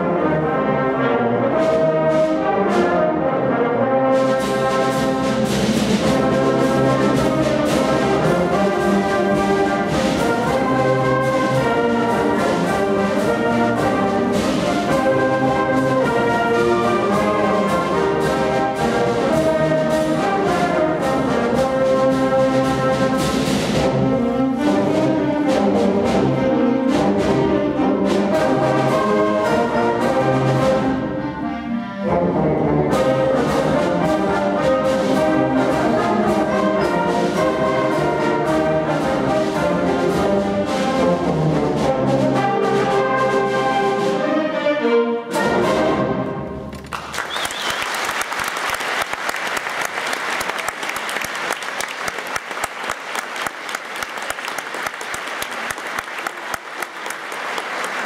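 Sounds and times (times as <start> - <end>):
concert band playing: 0.0 - 58.0
audience applauding: 46.7 - 58.0.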